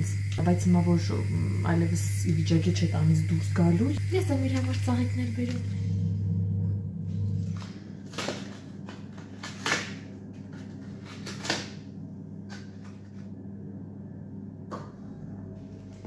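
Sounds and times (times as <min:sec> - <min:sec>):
low steady hum: 0:00.0 - 0:16.0
plastic packaging crinkling: 0:07.6 - 0:11.8.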